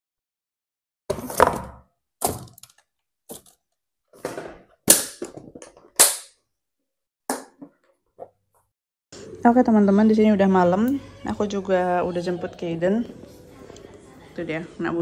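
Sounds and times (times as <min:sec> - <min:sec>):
knocks and clatters of household objects: 0:01.1 - 0:06.4.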